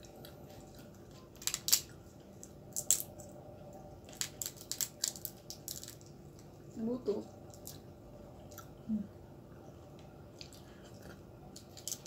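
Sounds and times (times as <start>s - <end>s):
crab shell cracking: 1.4s - 3.2s, 4.1s - 6.1s, 11.6s - 12.0s.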